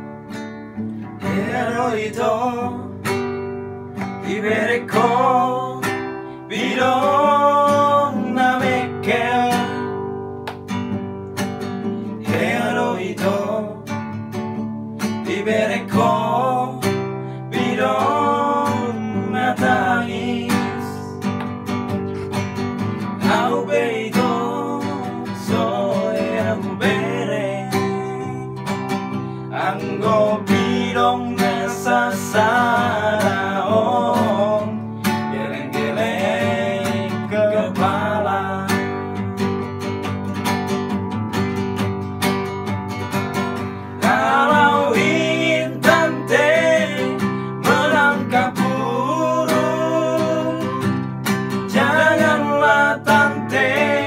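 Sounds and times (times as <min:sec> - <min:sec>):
men singing together: 0:01.2 - 0:03.0, 0:04.0 - 0:10.0, 0:12.2 - 0:14.0, 0:15.1 - 0:21.2, 0:23.2 - 0:28.5, 0:29.5 - 0:39.3, 0:44.0 - 0:51.0, 0:51.6 - 0:54.0.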